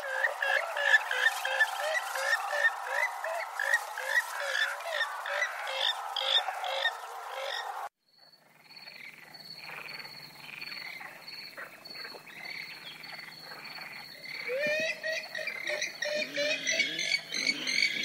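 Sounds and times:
swamphen calls: 0.0 - 7.8.

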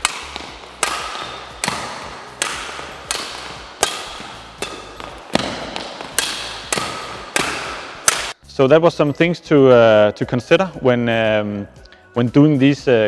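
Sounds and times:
badminton racket striking shuttlecock: 0.0 - 8.4.

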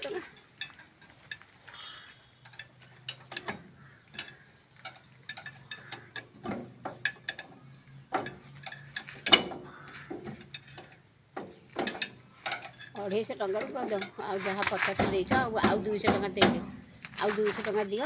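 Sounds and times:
metal clicks and clinks: 0.0 - 1.6, 2.4 - 6.3, 6.9 - 9.5, 11.8 - 14.7.

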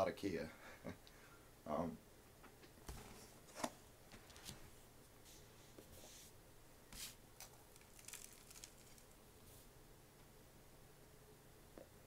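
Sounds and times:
tin and tobacco rustling: 7.4 - 9.5.

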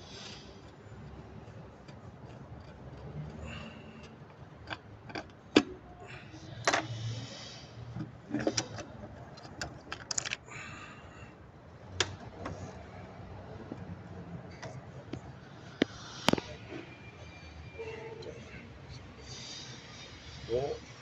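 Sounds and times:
clicks and knocks of connectors: 11.9 - 12.6.

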